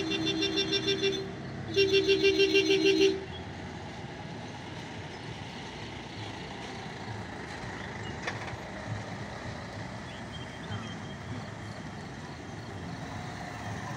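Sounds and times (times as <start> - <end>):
pulsing horn: 0.0 - 3.3
traffic noise: 0.0 - 13.9.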